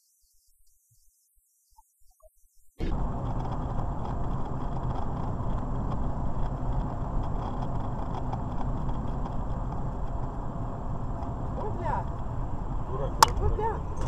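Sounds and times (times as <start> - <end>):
car cabin road and engine rumble: 2.8 - 14.0.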